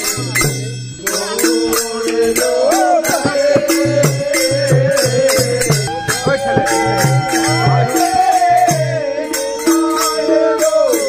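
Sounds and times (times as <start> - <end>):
hand cymbals beat: 0.0 - 11.0
person chanting a melody: 1.2 - 11.0.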